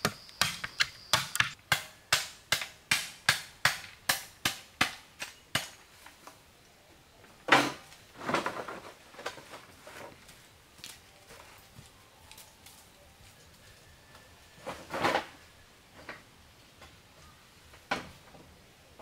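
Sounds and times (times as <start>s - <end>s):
tool striking wood: 0.0s - 5.0s
noisy rustle: 7.2s - 19.0s.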